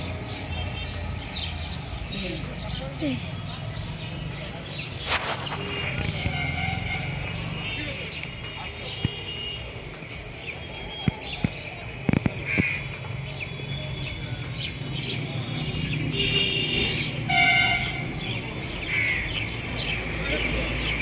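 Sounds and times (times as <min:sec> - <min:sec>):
birds chirping: 0:00.0 - 0:21.0
vehicle horn honk: 0:06.1 - 0:07.2, 0:16.2 - 0:18.0.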